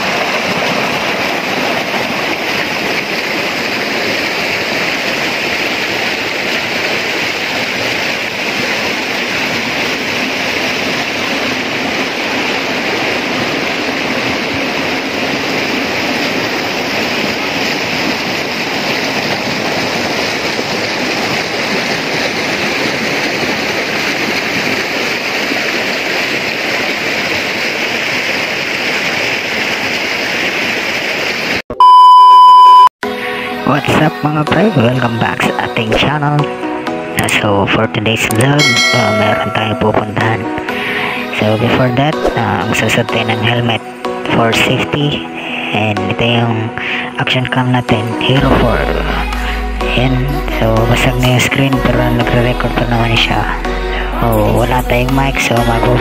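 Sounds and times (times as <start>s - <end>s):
stream rushing over rocks: 0.0s - 31.6s, 38.5s - 42.9s.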